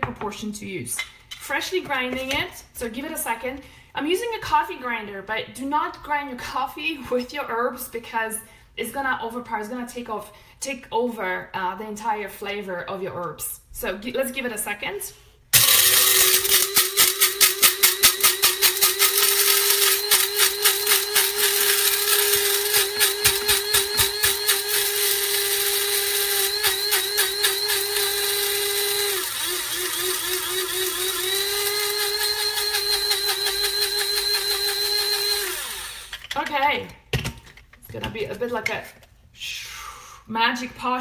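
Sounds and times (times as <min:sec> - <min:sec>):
coffee grinder motor whine: 0:15.6 - 0:36.4.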